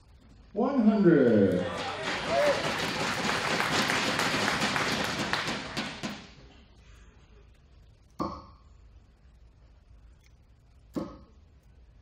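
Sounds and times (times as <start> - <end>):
audience applause: 1.5 - 6.4.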